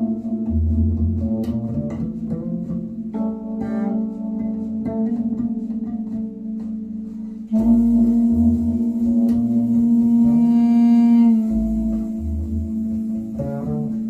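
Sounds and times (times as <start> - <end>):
deep bass: 0.0 - 14.0
plucked string music: 0.0 - 14.0.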